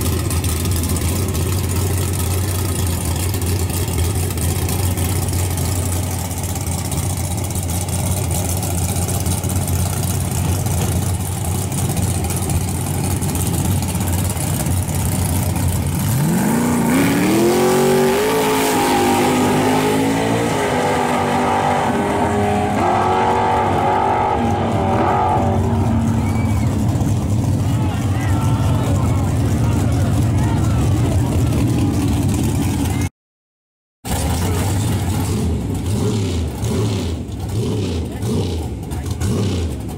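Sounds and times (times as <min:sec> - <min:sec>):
truck engine idling: 0:00.0 - 0:16.3, 0:25.5 - 0:33.1, 0:34.1 - 0:39.9
truck engine revving hard: 0:15.4 - 0:33.1, 0:34.1 - 0:39.9.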